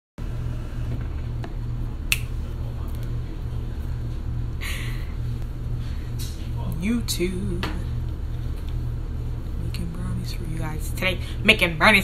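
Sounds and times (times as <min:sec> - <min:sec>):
steady low hum: 0:00.2 - 0:12.0.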